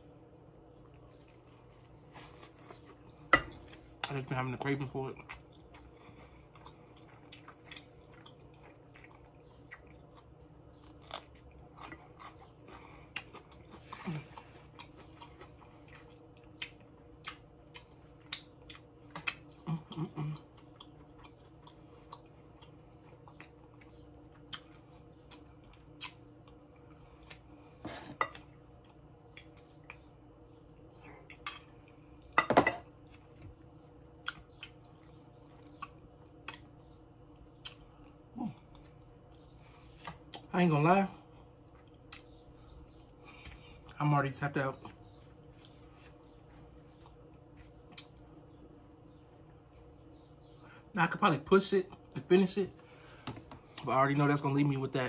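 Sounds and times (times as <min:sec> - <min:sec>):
faint steady hum: 0:00.0 - 0:55.0
person chewing food: 0:00.4 - 0:04.3, 0:05.1 - 0:40.5, 0:41.2 - 0:44.0, 0:44.9 - 0:48.6, 0:49.4 - 0:50.8
tableware clinking: 0:32.4 - 0:32.8.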